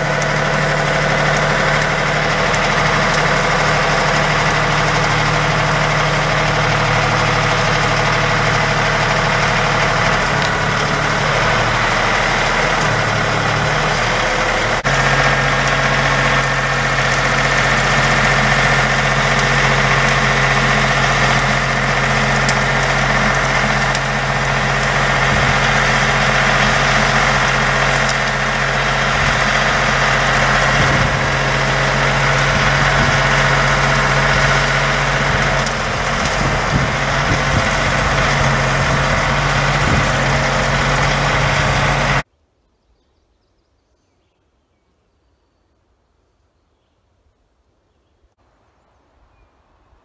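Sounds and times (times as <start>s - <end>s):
tractor engine droning: 0.0s - 42.3s.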